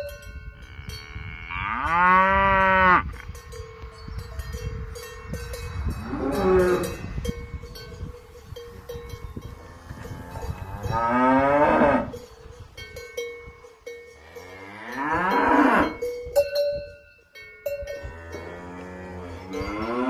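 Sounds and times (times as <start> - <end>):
cowbells ringing and clanking: 0.0 - 20.0
cows mooing: 0.6 - 3.1, 6.0 - 7.0, 9.5 - 12.2, 14.2 - 16.0, 18.0 - 20.0.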